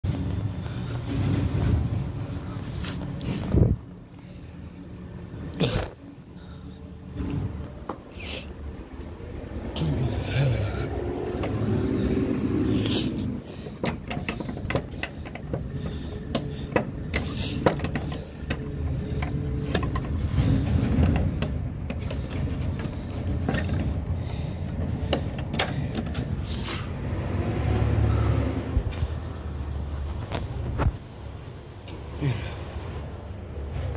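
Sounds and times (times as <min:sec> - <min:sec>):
vehicle engine rumbling: 0:00.0 - 0:33.9
sharp clicks and knocks: 0:13.1 - 0:26.4.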